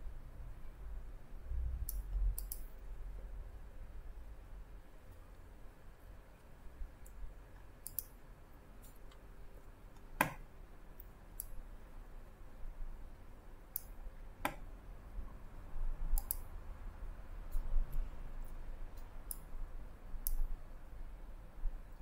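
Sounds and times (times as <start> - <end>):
computer mouse clicking: 1.8 - 2.8, 7.0 - 8.2, 11.0 - 11.6, 13.7 - 14.6, 16.1 - 16.5, 17.5 - 19.5, 20.2 - 20.5.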